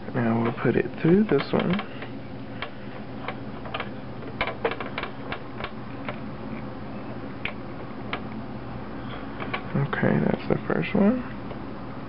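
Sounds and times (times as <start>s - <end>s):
fingernails tapping plastic and metal: 0.4s - 6.2s.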